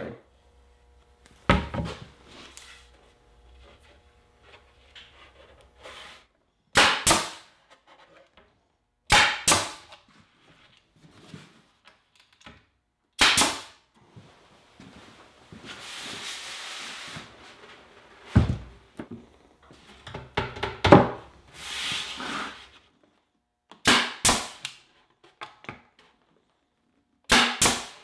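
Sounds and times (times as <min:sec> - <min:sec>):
nail gun firing into plywood: 0:06.7 - 0:07.5, 0:09.1 - 0:09.9, 0:13.2 - 0:13.8, 0:23.8 - 0:24.8, 0:27.3 - 0:28.0.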